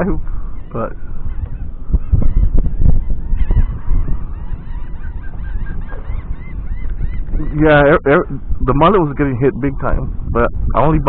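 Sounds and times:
birds calling: 0.0s - 9.8s
wind buffeting microphone: 0.0s - 11.0s.

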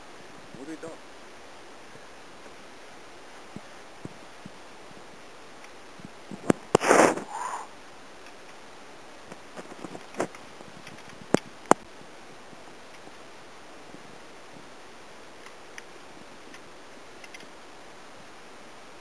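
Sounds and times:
short breathy rush: 6.8s - 7.8s.

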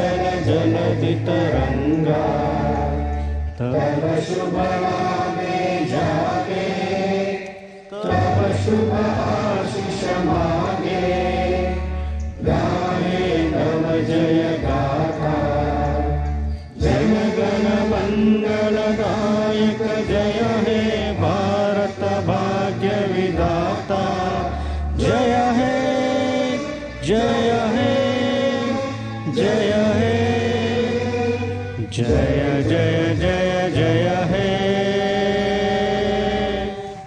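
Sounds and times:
instrumental backing with bass: 0.0s - 37.0s
person singing long held notes: 0.0s - 37.0s.

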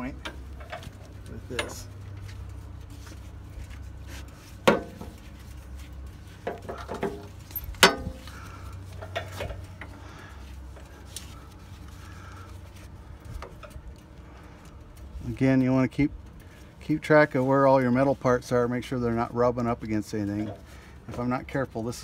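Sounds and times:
steady low hum: 0.0s - 21.3s
metal hook clanking on metal: 6.7s - 8.2s.

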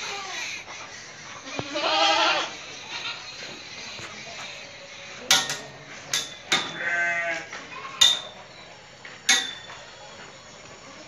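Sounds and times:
goat bleating: 1.4s - 3.2s, 6.7s - 8.0s
sharp knocks: 9.3s - 9.8s.

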